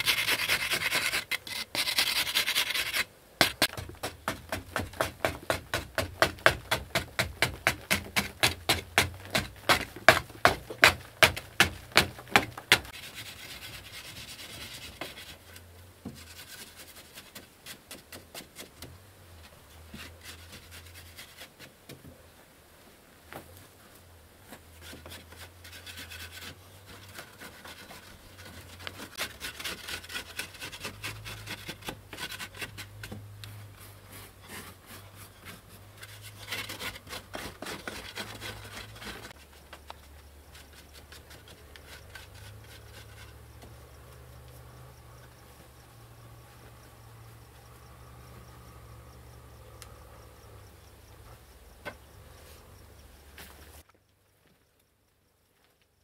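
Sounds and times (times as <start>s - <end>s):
tool scraping earth wall: 0.0s - 22.0s, 24.5s - 44.8s.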